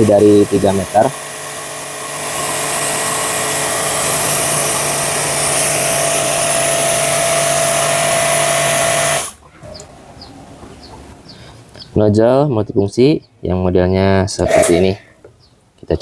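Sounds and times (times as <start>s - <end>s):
pressure washer pump humming: 0.0s - 9.4s.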